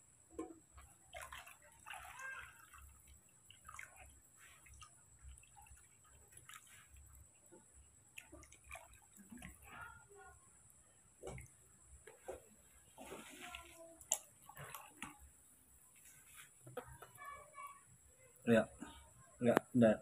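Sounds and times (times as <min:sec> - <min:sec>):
water pouring into plastic basin: 0:00.8 - 0:10.1, 0:13.0 - 0:15.3.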